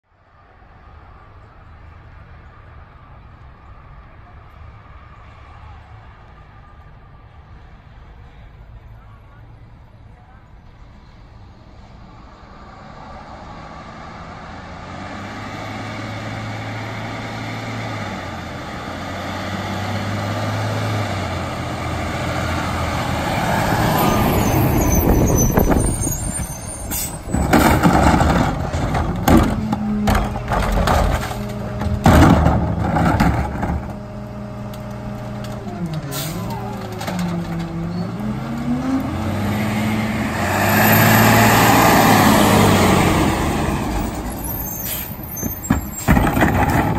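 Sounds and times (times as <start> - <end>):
garbage truck engine: 12.9 - 46.9
air brakes hissing: 24.4 - 27.3, 44.5 - 46.2
trash cart banging on hopper: 26.9 - 34.2, 45.4 - 46.9.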